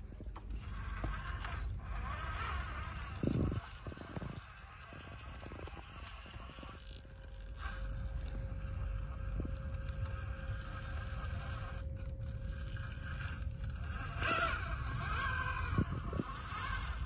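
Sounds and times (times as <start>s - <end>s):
electric motor whining: 0.0s - 17.0s
low rumble: 0.0s - 17.0s.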